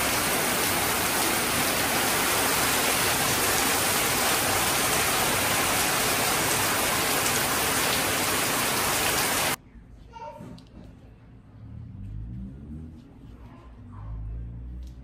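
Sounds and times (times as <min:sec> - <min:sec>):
heavy rain falling: 0:00.0 - 0:09.6.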